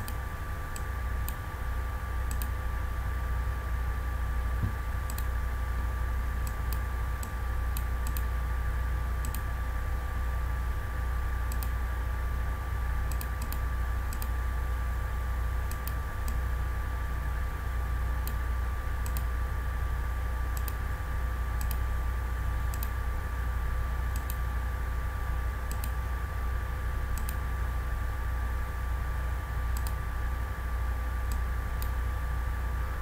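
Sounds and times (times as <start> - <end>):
low electrical hum: 0.0 - 33.0
computer mouse clicks: 2.3 - 2.6, 5.1 - 5.3, 6.4 - 8.3, 9.2 - 9.4, 11.5 - 11.8, 13.1 - 14.3, 15.7 - 16.4, 19.0 - 19.3, 20.6 - 20.8, 21.6 - 21.8, 22.7 - 23.0, 24.1 - 24.4, 25.7 - 26.0, 27.2 - 27.4, 29.8 - 30.0.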